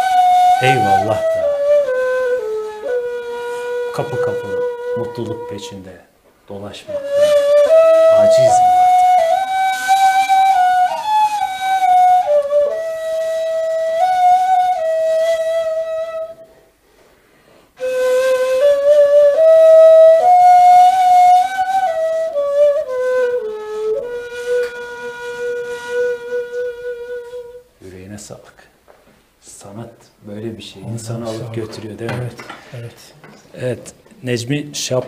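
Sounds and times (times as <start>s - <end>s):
end-blown reed flute melody: 0.0s - 5.6s, 6.9s - 16.4s.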